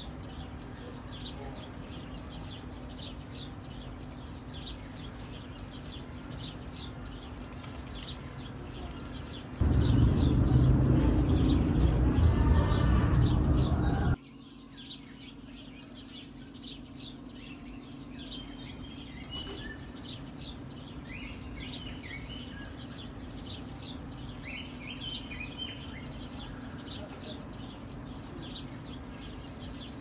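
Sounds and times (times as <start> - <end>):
small birds chirping: 0.0 - 30.0
steady low hum: 9.4 - 14.2
loud sound cutting off: 9.6 - 14.2.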